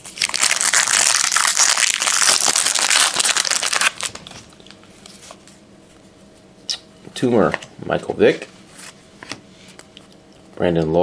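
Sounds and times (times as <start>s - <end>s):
wrapper tearing and crinkling: 0.0s - 4.4s.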